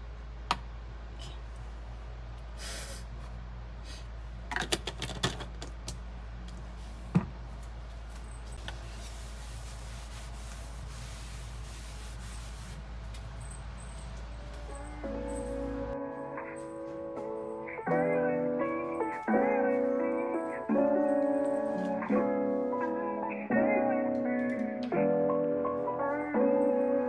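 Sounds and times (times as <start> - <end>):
cloth rubbing on counter: 8.6 - 12.9.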